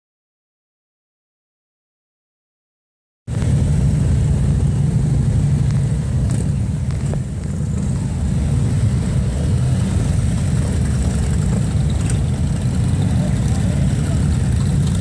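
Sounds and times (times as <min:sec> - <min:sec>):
motorcycles rumbling past: 0:03.8 - 0:15.0.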